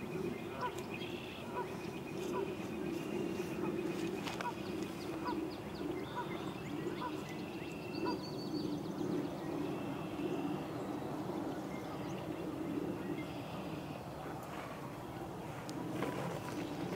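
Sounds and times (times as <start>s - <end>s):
ducks and geese calling: 0.0s - 8.2s
songbirds singing: 0.0s - 16.9s.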